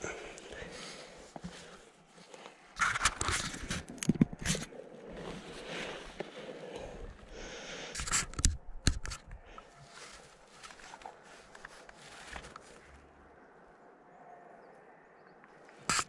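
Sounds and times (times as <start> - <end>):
sharp clicks and knocks: 2.8 - 4.7, 8.0 - 9.4.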